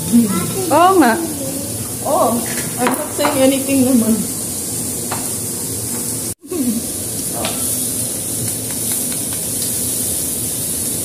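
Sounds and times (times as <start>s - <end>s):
meat and noodles sizzling: 0.0s - 11.0s.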